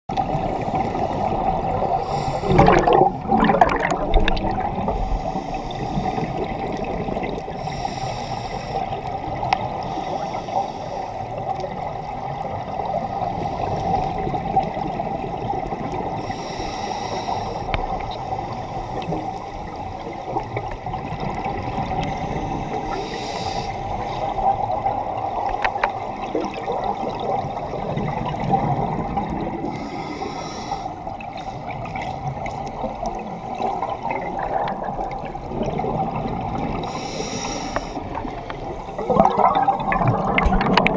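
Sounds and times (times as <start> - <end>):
scuba regulator breathing underwater: 0.3 - 9.1, 9.7 - 11.3, 16.0 - 20.6, 22.0 - 24.6, 29.4 - 32.0, 36.2 - 40.9
bubbling exhalations: 2.1 - 5.1, 38.0 - 40.9.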